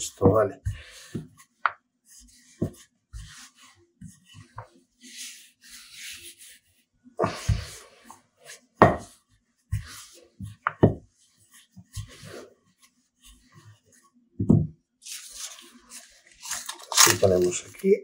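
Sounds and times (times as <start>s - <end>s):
rolling pin rubbing dough: 0.0s - 14.2s.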